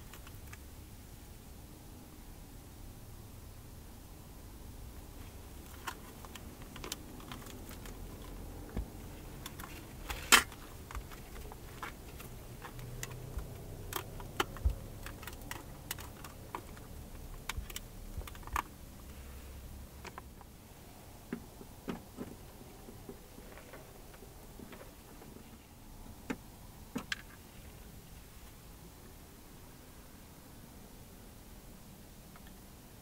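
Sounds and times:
faint low hum: 0:00.0 - 0:33.0
small objects clicking and tapping: 0:05.6 - 0:18.7.

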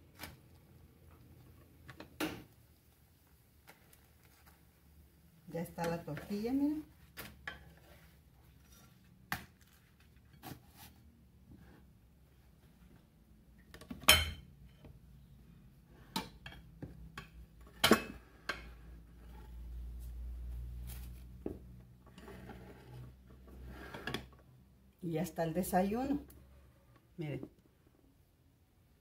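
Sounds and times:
dishes and utensils clattering: 0:14.0 - 0:14.5.

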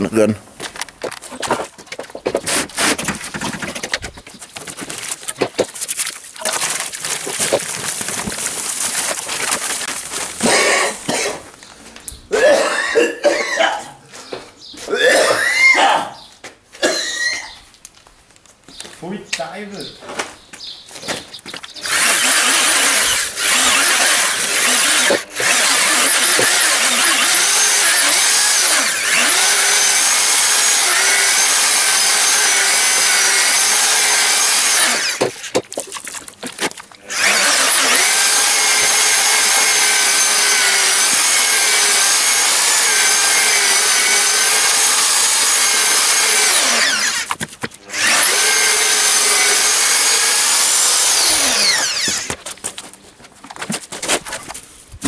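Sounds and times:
electric paddle mixer whining: 0:21.8 - 0:35.6, 0:37.0 - 0:52.4.

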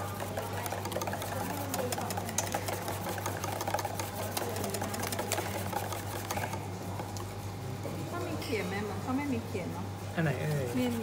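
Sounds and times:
whisk ticking against metal bowl: 0:00.0 - 0:07.4, 0:10.3 - 0:11.0.

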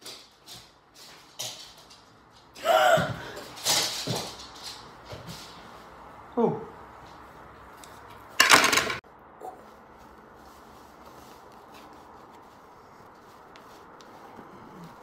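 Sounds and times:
rubber mask rustling: 0:09.6 - 0:15.0.

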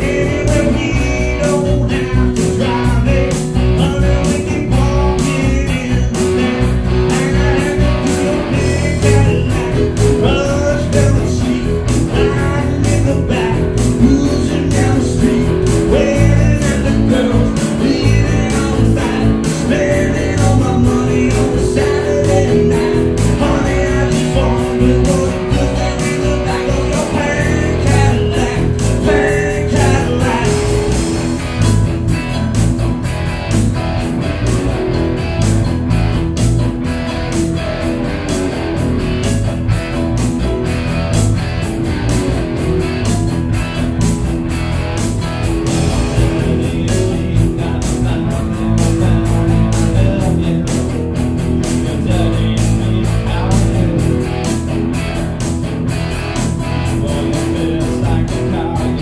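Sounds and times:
person singing: 0:00.0 - 0:31.4, 0:45.7 - 0:54.7, 0:56.9 - 0:59.0
guitars: 0:00.0 - 0:59.0
steady drum beat: 0:00.0 - 0:59.0.

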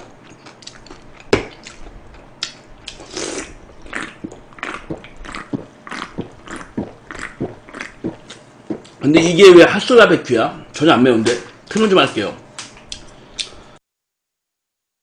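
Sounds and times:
person gulping drink: 0:02.9 - 0:09.0.

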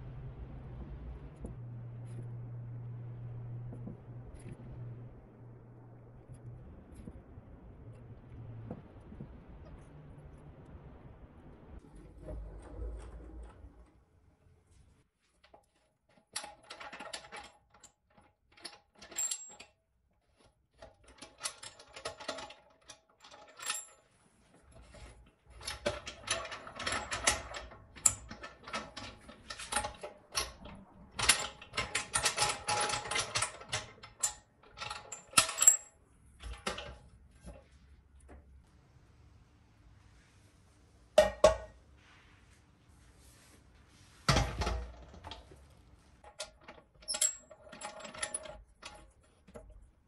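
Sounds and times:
metal clamp knobs clicking and rattling: 0:16.1 - 0:19.8, 0:24.9 - 0:37.0, 0:46.2 - 0:49.9.

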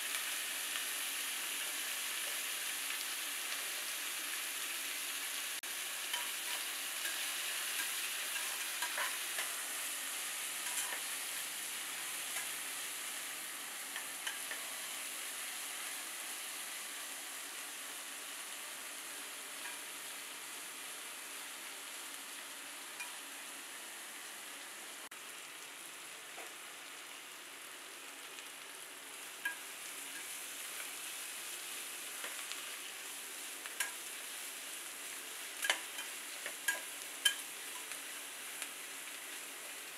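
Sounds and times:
onions sizzling in hot oil: 0:00.0 - 0:39.9
spatula stirring: 0:10.6 - 0:11.1
spatula clicking against pan: 0:35.6 - 0:38.0.

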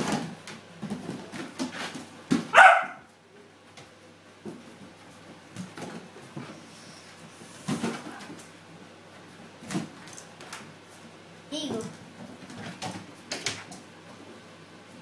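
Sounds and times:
puppy barking: 0:02.5 - 0:03.1.

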